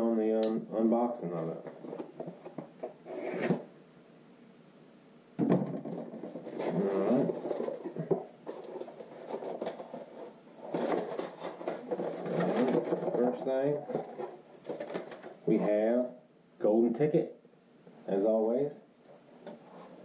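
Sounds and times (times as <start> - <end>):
cardboard flaps scraping and rustling: 5.9 - 15.7.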